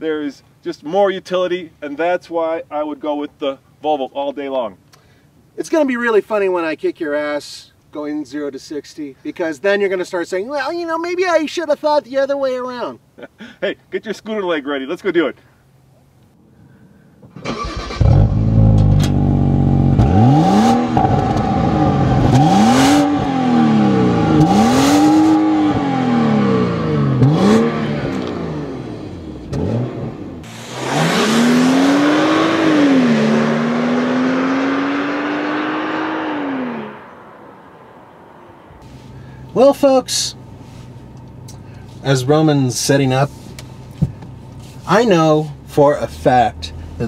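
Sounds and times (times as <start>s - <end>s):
car engine revving: 17.5s - 39.3s.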